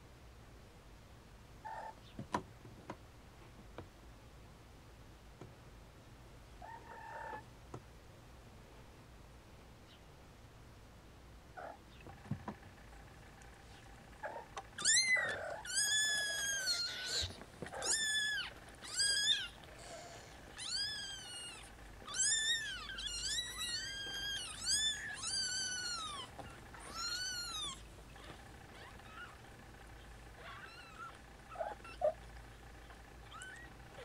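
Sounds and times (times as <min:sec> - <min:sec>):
kittens mewing: 0:14.1 - 0:34.0.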